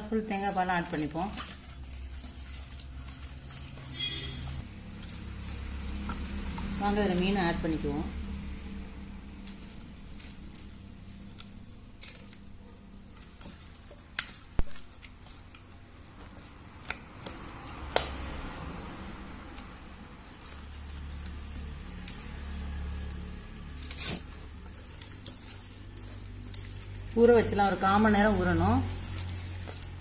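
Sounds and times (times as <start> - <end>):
hands squelching fish in marinade: 0.0 - 30.0.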